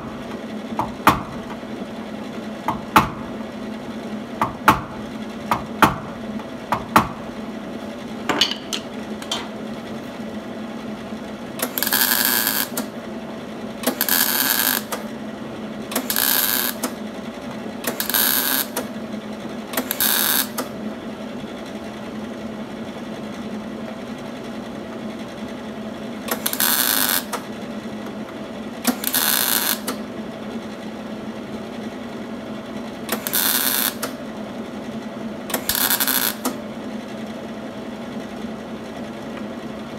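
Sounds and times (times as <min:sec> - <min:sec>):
welding bursts crackling and buzzing: 0:11.6 - 0:12.9, 0:13.8 - 0:15.1, 0:15.9 - 0:17.0, 0:17.8 - 0:18.9, 0:19.8 - 0:20.7, 0:26.3 - 0:27.4, 0:28.8 - 0:30.0, 0:33.1 - 0:34.2, 0:35.5 - 0:36.6.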